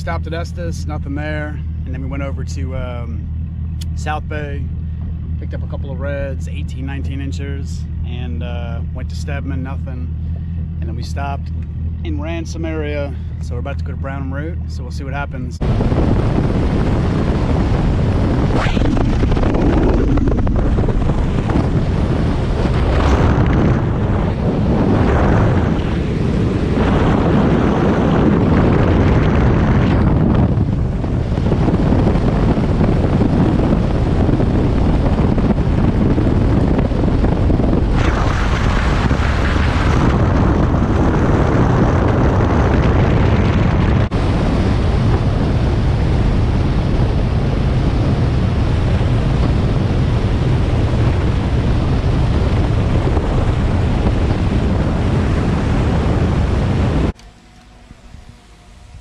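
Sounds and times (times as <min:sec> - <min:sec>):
wind buffeting microphone: 0:00.0 - 0:59.0
boat rushing across water: 0:14.6 - 0:59.0.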